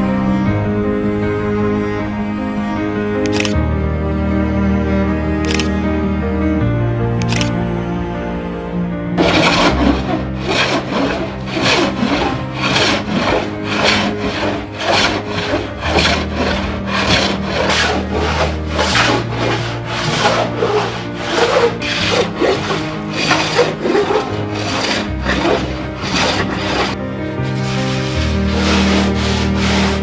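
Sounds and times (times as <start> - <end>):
hand plane shaving wood: 9.2 - 30.0.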